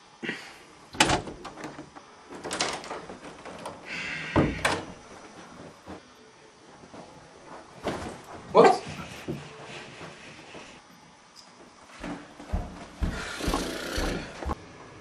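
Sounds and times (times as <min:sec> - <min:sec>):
door thumping shut: 0:01.0 - 0:01.6.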